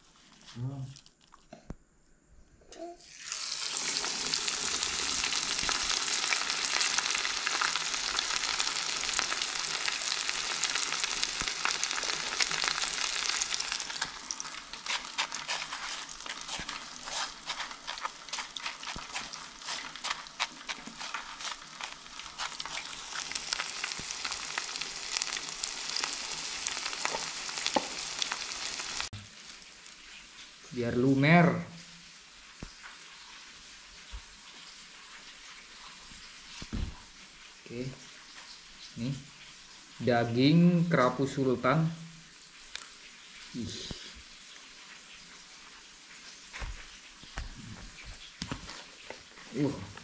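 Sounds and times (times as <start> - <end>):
oil crackling and popping: 0.0 - 1.7, 3.0 - 30.8, 32.0 - 40.0, 42.2 - 50.0
fish frying in hot oil: 3.0 - 50.0.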